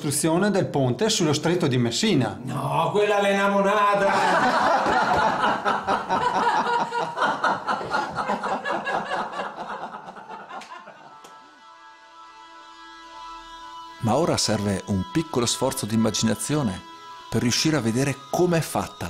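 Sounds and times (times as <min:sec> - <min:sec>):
men laughing: 0:04.0 - 0:11.3
soft sustained music notes: 0:10.3 - 0:19.0.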